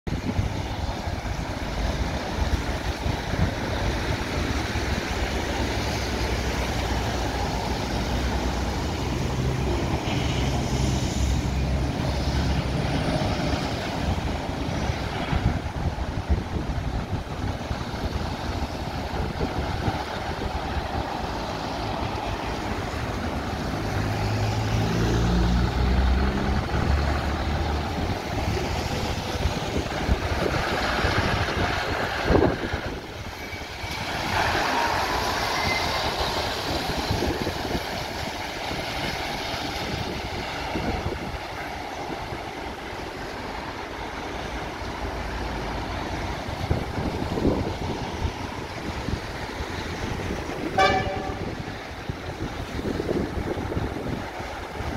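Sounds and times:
traffic: 0.0s - 54.9s
lorry diesel engine accelerating: 0.1s - 54.9s
road noise on wet surface: 0.1s - 54.9s
wind noise: 0.1s - 54.9s.

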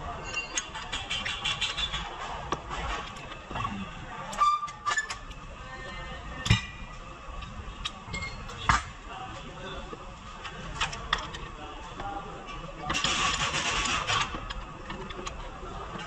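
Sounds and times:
metal tools clinking and knocking: 0.2s - 0.8s.

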